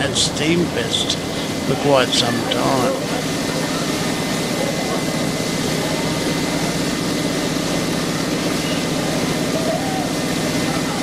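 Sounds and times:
heavy engine idling: 0:00.0 - 0:11.0.

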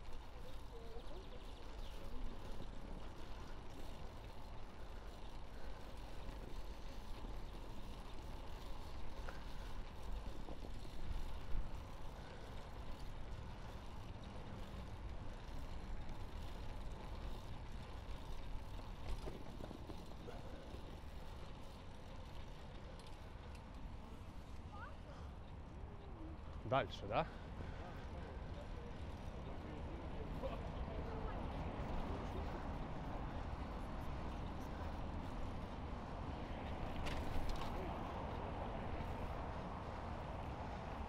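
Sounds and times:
faint bicycle clicks: 0:00.0 - 0:41.0
road and traffic rumble: 0:00.0 - 0:41.0
bicycle bump: 0:16.2 - 0:23.7, 0:36.6 - 0:38.1.

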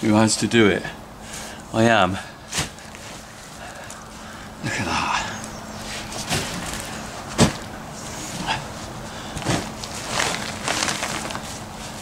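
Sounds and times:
faint steady hum: 0:00.0 - 0:12.0
silage scraping and rustling: 0:05.8 - 0:12.0.

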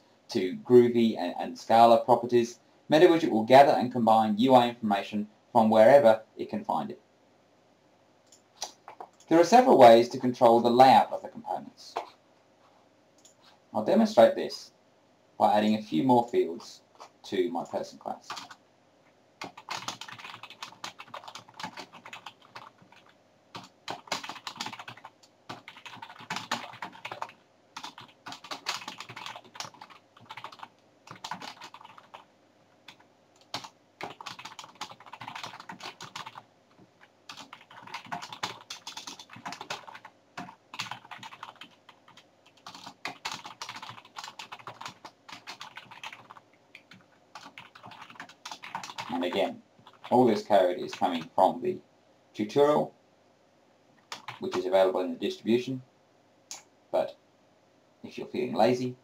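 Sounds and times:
keyboard typing: 0:08.3 - 0:09.3, 0:18.3 - 0:18.6, 0:19.4 - 0:51.4, 0:54.0 - 0:54.7.

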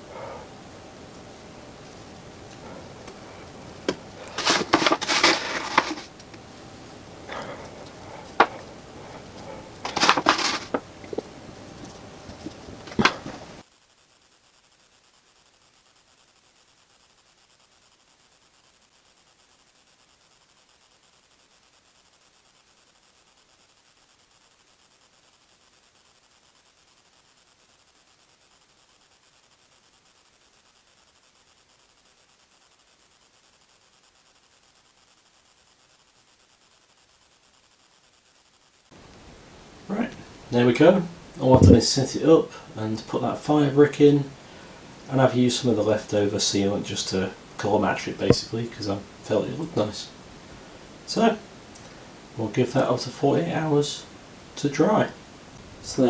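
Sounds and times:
faint steady hiss: 0:00.0 - 0:56.0
brush scraping metal: 0:01.8 - 0:06.2, 0:07.3 - 0:13.6, 0:41.5 - 0:41.8.

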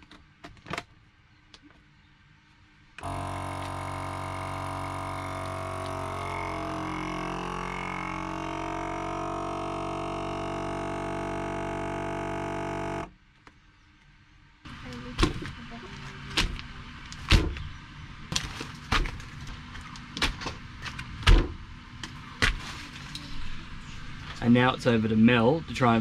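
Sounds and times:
vacuum pump droning: 0:03.0 - 0:13.1.

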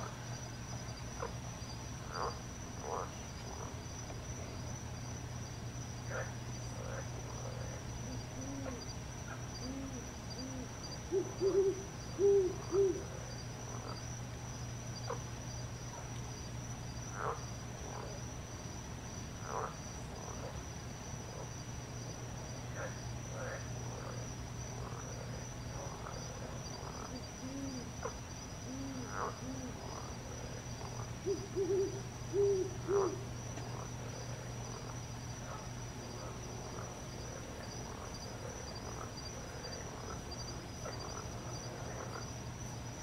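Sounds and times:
high insect drone: 0:00.0 - 0:43.0
owl hooting: 0:08.1 - 0:13.1, 0:26.9 - 0:29.8, 0:31.2 - 0:33.2.

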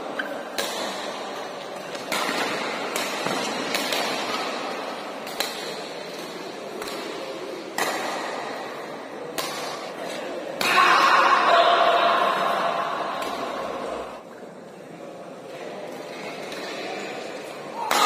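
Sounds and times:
rackets smacking shuttlecock: 0:00.2 - 0:10.7.

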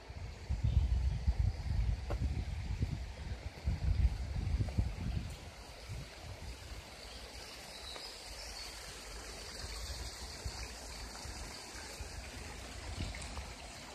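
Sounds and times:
water rushing into river: 0:05.2 - 0:13.9.

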